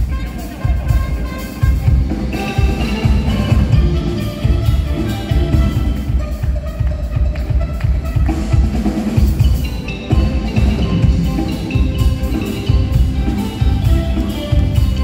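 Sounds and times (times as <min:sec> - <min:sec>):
drum kit beat: 0:00.0 - 0:15.0
sustained melodic lines: 0:09.3 - 0:15.0.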